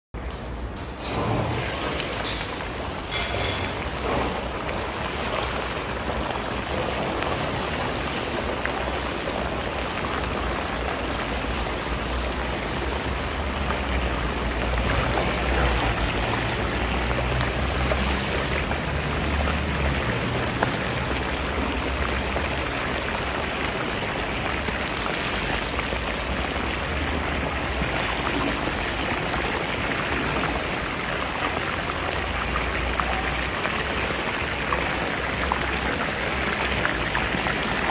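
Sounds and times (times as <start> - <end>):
meat deep-frying in oil: 1.0 - 37.9.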